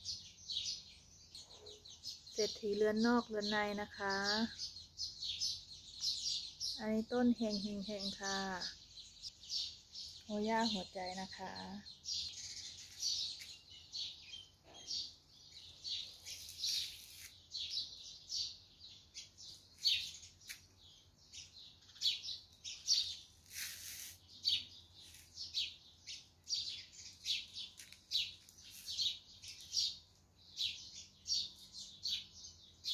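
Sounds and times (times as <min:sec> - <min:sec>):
small birds chirping: 0:00.0 - 0:32.9.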